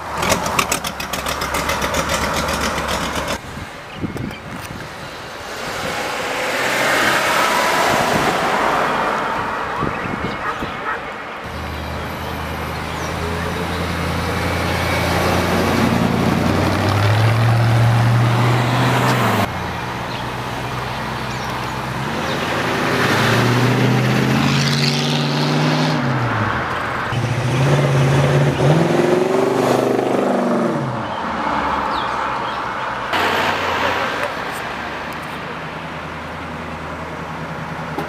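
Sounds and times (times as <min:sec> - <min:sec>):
car engines revving past: 0:05.4 - 0:10.6, 0:11.5 - 0:19.5, 0:20.1 - 0:36.0.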